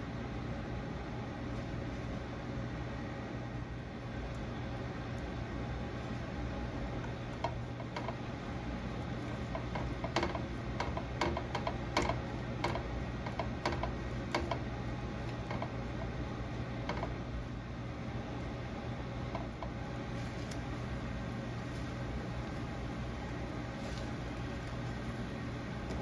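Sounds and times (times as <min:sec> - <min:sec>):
steady low hum: 0:00.0 - 0:26.0
garlic crackling in butter: 0:19.1 - 0:26.0.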